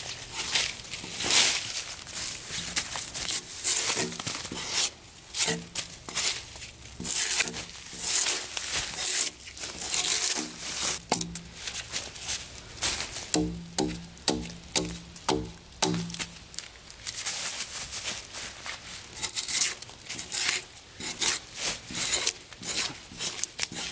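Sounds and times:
drawknife scraping bark: 0:03.2 - 0:06.4, 0:07.0 - 0:11.5, 0:19.2 - 0:23.9
bark tearing from wood: 0:07.0 - 0:11.5.

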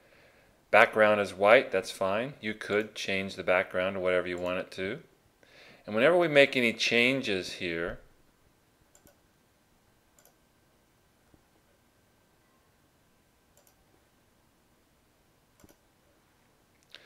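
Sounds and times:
faint computer mouse clicks: 0:08.9 - 0:09.2, 0:10.2 - 0:10.4, 0:13.6 - 0:13.8, 0:15.6 - 0:15.8.

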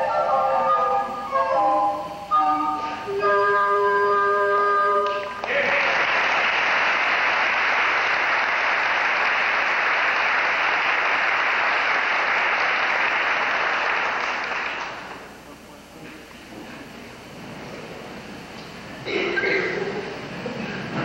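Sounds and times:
music held chord: 0:00.0 - 0:05.4
audience applause: 0:05.4 - 0:15.3.

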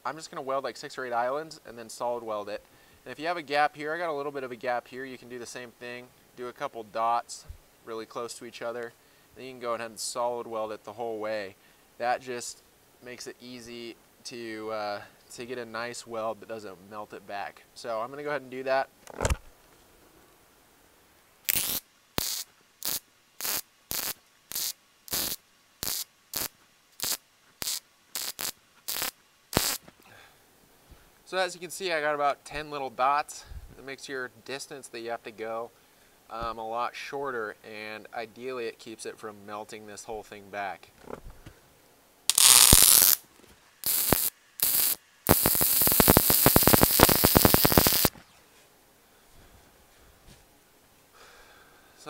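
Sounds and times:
welding arc crackling bursts: 0:21.5 - 0:29.8, 0:42.3 - 0:43.2, 0:43.8 - 0:48.1.

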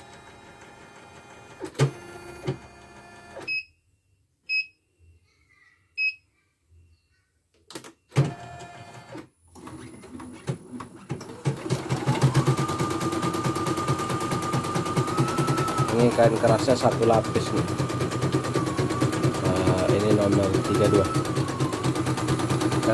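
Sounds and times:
short beeps: 0:03.4 - 0:05.0
embroidery machine stitching: 0:08.2 - 0:22.9.

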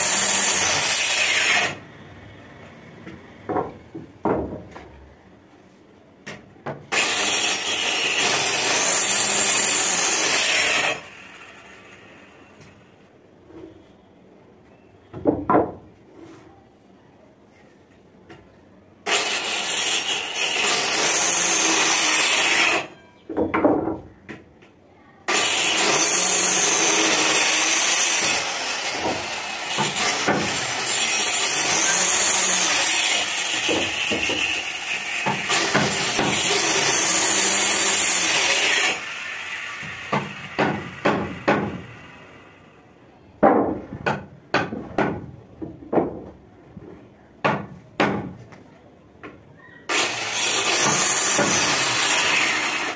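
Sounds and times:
circular saw cutting wood: 0:00.0 - 0:01.8, 0:06.9 - 0:12.4, 0:19.1 - 0:22.9, 0:25.3 - 0:42.5, 0:49.9 - 0:52.9
wooden planks knocking: 0:03.5 - 0:04.9, 0:43.4 - 0:46.4.

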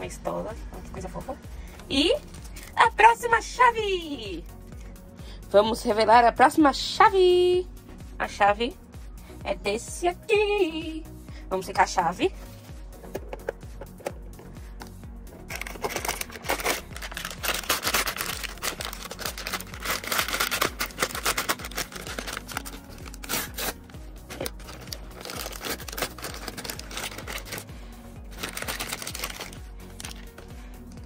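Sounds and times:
background music: 0:00.0 - 0:31.0
plastic packet crinkling and tearing: 0:15.5 - 0:27.6, 0:28.2 - 0:30.3.

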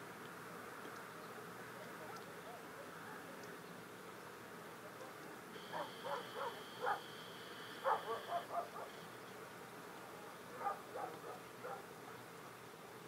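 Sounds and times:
faint high whine: 0:04.9 - 0:11.8
short animal calls: 0:05.6 - 0:09.2.

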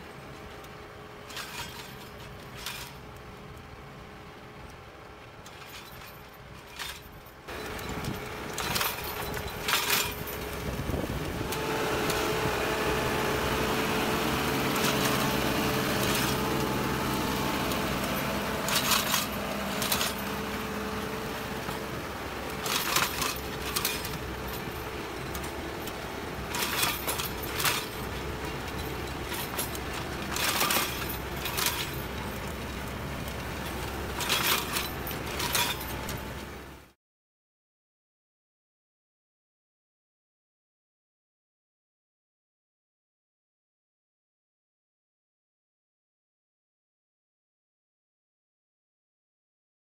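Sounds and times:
tractor engine running: 0:00.0 - 0:36.9.

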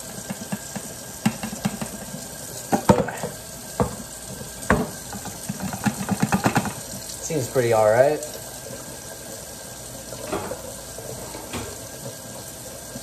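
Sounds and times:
hot grease crackling and sizzling: 0:00.0 - 0:13.0
tap water running: 0:00.0 - 0:13.0
metal pan and lid clanking: 0:10.2 - 0:11.9.

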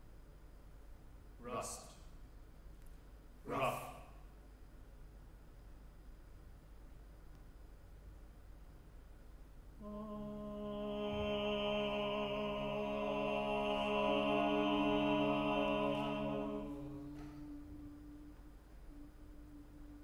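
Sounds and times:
chamber ensemble sustained chord: 0:09.8 - 0:20.0.

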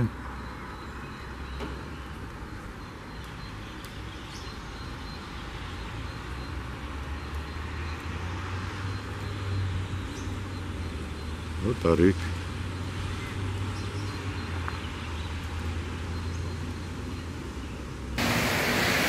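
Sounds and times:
tyres hissing on wet road: 0:05.3 - 0:17.0, 0:18.0 - 0:19.0.

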